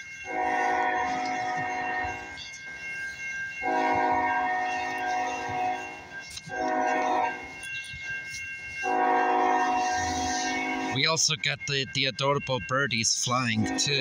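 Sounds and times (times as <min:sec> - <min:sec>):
crossing signal ringing: 0:00.0 - 0:14.0
locomotive air horn blasts: 0:00.2 - 0:02.4, 0:03.6 - 0:07.5, 0:08.8 - 0:11.1, 0:13.5 - 0:14.0.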